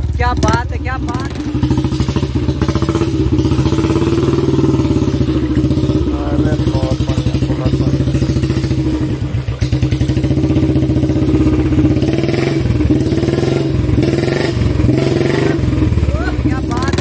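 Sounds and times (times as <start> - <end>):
motorcycle engine revving: 0.0 - 17.0.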